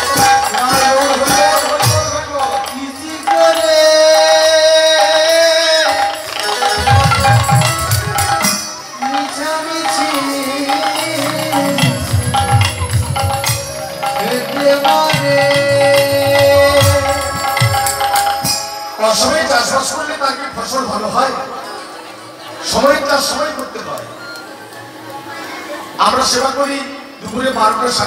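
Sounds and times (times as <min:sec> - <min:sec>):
hand drum running rhythm: 0:00.0 - 0:02.8, 0:05.0 - 0:18.7
jingling percussion: 0:00.0 - 0:25.1
sustained melody: 0:00.0 - 0:26.3.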